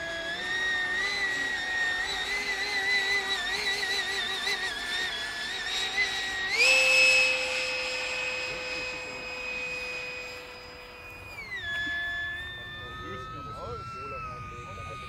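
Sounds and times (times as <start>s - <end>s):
electric ducted fan whining: 0.0s - 15.0s.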